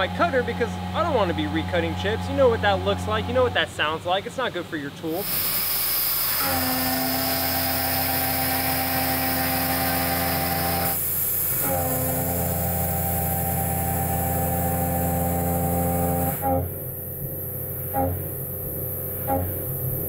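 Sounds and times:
mill cutting metal: 0.0 - 4.3, 5.0 - 16.9
air blast hiss: 5.1 - 12.1.

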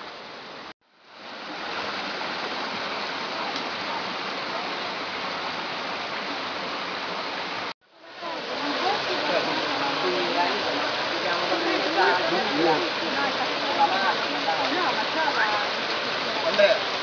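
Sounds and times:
rocky stream rushing: 0.0 - 17.0.

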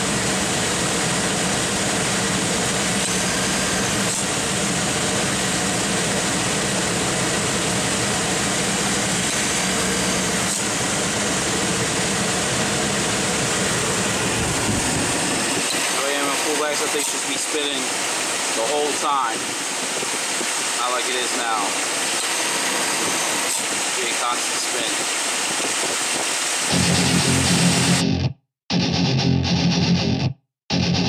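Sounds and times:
car engine idling: 0.0 - 16.6
air conditioning running: 0.0 - 20.8.

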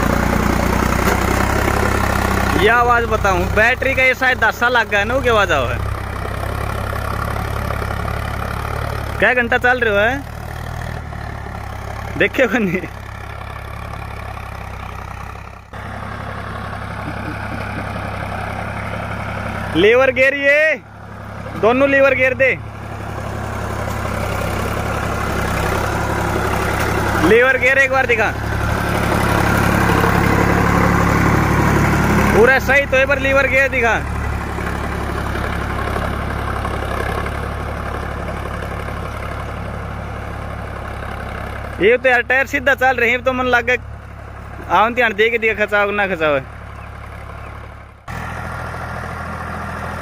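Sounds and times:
tractor diesel engine running: 0.0 - 50.0.

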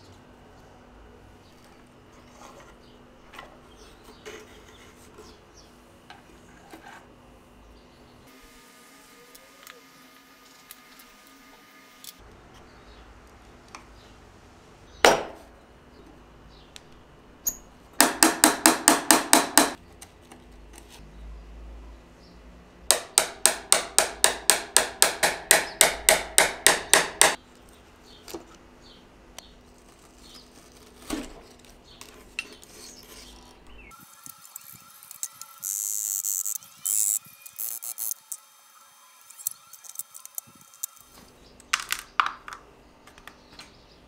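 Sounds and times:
hammer tapping on metal: 18.0 - 19.8, 22.9 - 27.4.

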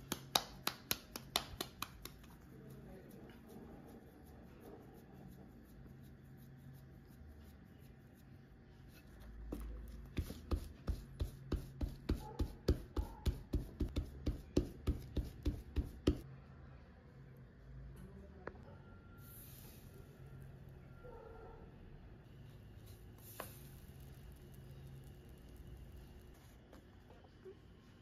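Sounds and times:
hands patting dough flat: 0.0 - 2.8, 9.4 - 16.3
hands rubbing dough: 0.0 - 16.3.

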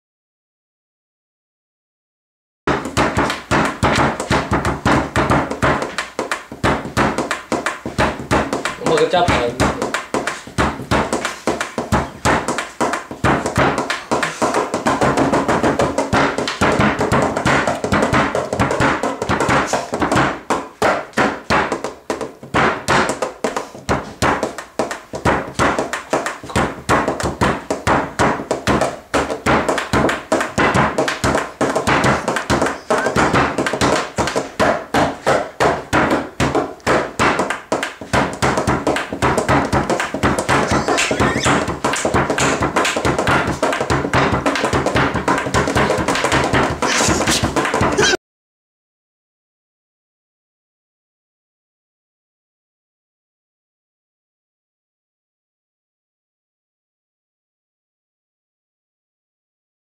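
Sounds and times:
hands drumming on wooden table: 2.7 - 48.2.

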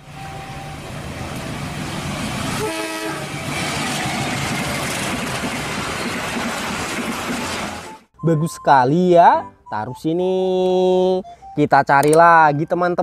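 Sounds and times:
diesel locomotive rumbling: 0.0 - 8.1
train horn toot: 2.6 - 3.5.

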